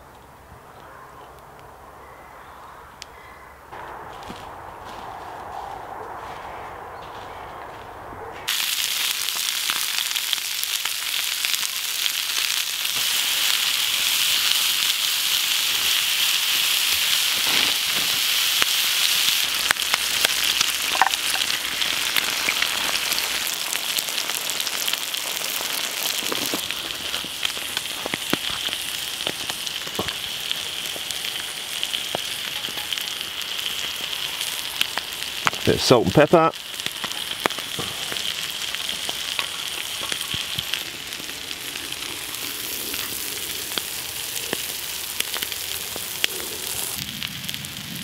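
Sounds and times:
food sizzling in pans: 8.5 - 48.0.

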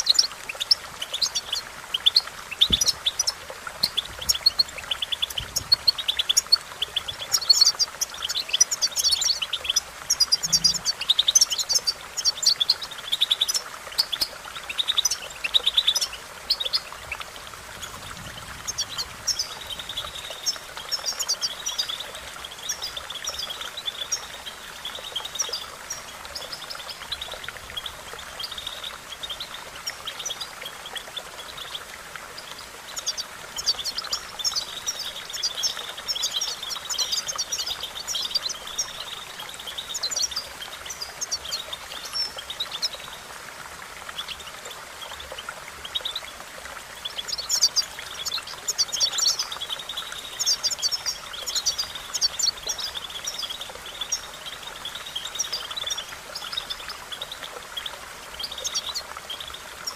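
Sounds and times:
finch singing: 0.0 - 17.2.

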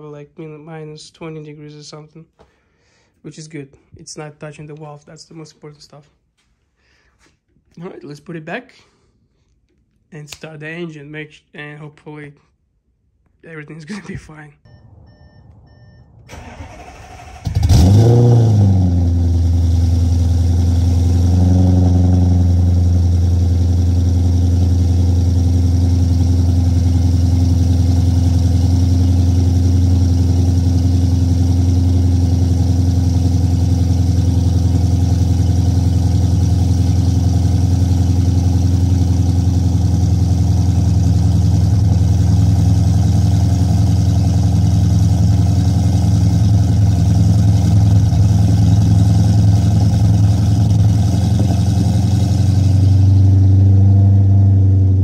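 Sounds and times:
car engine starting and idling: 14.7 - 55.0.

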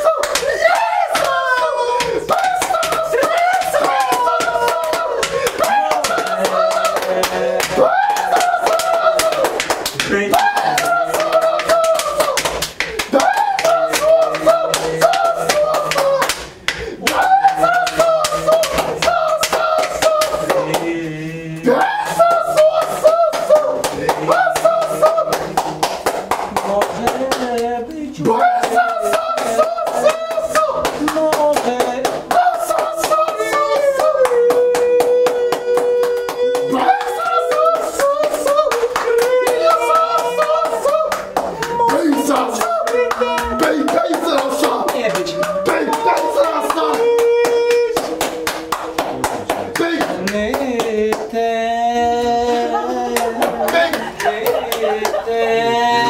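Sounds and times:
voices singing along: 0.0 - 56.0
sharp claps or knocks: 0.2 - 20.9, 22.2 - 27.7, 34.0 - 51.3.

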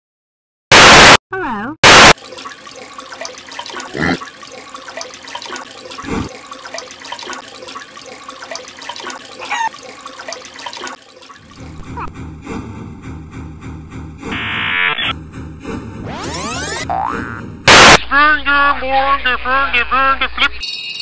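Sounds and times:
loud water splashes: 1.8 - 11.8
water sloshing and gurgling: 2.1 - 14.4.

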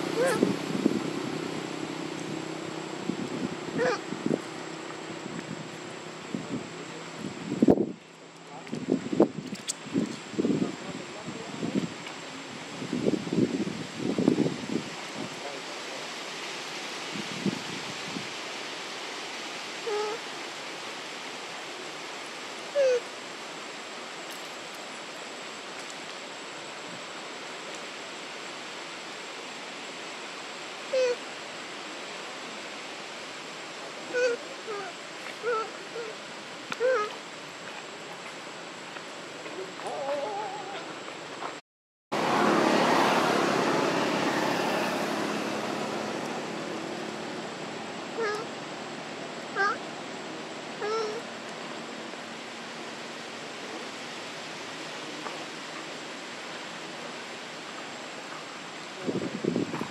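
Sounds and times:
steady rushing noise: 0.0 - 8.0
outdoor background hiss: 0.0 - 41.6, 42.2 - 59.9.

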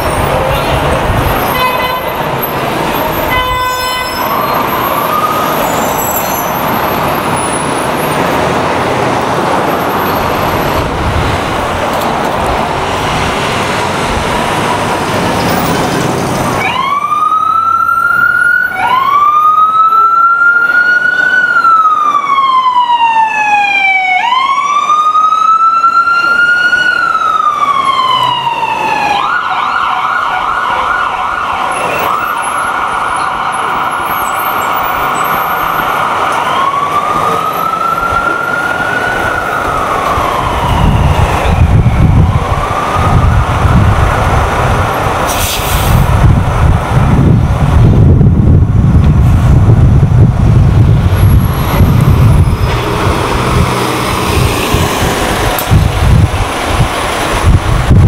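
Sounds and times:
emergency siren wailing: 0.0 - 45.3, 45.9 - 58.0
street traffic: 0.0 - 58.0.

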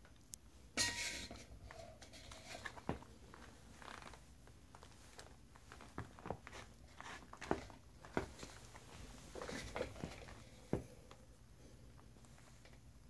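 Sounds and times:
boots rustling: 2.6 - 11.1.

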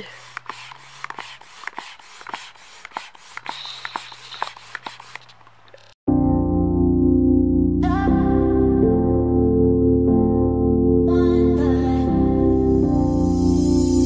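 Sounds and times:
hand pump strokes: 0.0 - 6.0.

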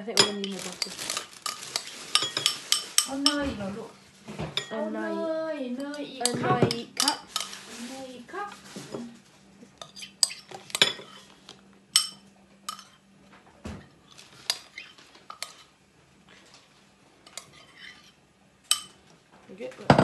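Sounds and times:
spoon clinking against bowl: 0.2 - 0.9, 9.8 - 11.2, 12.0 - 13.0, 18.7 - 19.0
metal spoon scraping bowl: 0.2 - 3.4, 5.8 - 7.9, 9.8 - 11.4, 12.0 - 13.0, 14.2 - 15.7, 17.3 - 19.0.

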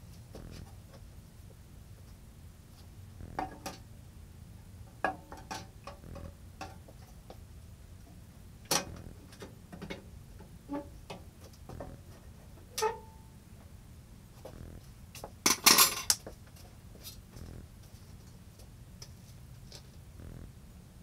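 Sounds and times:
metal parts clicking and knocking: 15.5 - 16.3.

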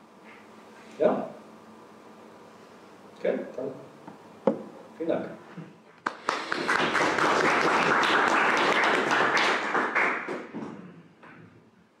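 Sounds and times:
audience applauding: 6.0 - 10.6.

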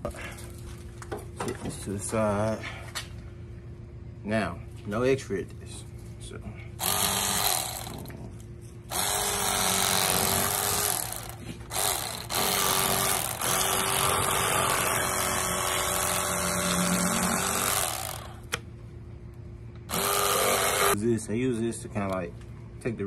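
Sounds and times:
electric fillet knife motor: 6.8 - 8.1, 8.9 - 18.4, 19.9 - 21.0.

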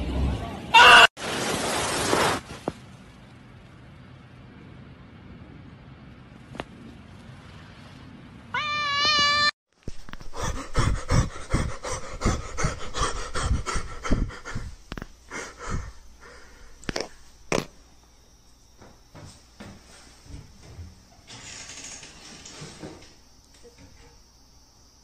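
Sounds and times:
cat yowling: 0.8 - 1.1, 8.5 - 9.5.

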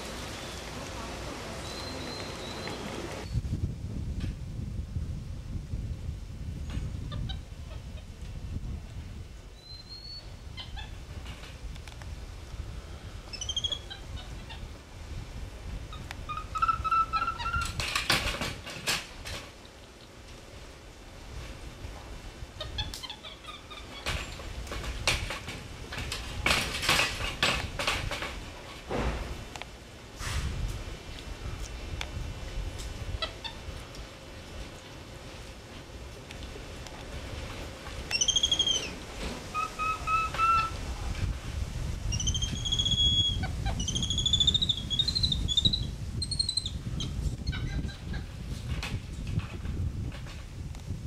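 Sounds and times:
high whistled animal calls: 1.6 - 2.8, 9.6 - 11.0, 13.3 - 14.3, 16.3 - 17.7, 38.1 - 40.8, 42.1 - 47.8
monkey squeaking: 13.3 - 14.6, 15.9 - 17.8, 22.6 - 24.2, 38.1 - 40.8, 42.1 - 48.2
rustling and rattling: 17.6 - 19.6, 23.7 - 29.5.

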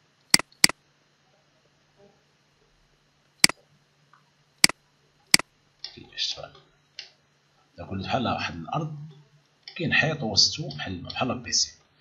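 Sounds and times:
mouse button clicks: 0.4 - 0.7.

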